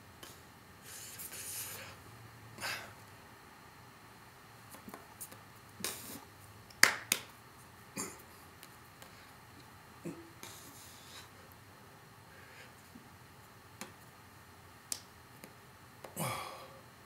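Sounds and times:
hands slapping and brushing: 4.7 - 7.3.

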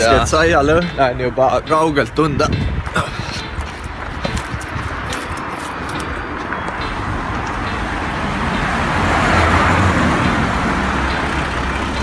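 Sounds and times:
vehicle passing: 3.3 - 12.0.

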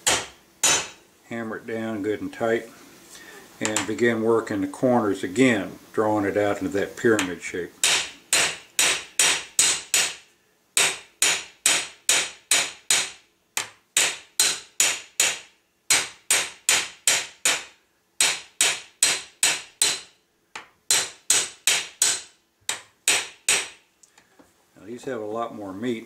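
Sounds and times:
hammer striking metal nail: 0.0 - 1.0, 7.2 - 10.2, 10.8 - 23.8.

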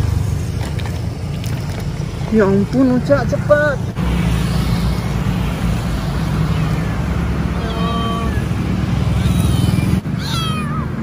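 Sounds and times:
road traffic rumble: 0.0 - 11.0
kitten meowing: 9.1 - 11.0.

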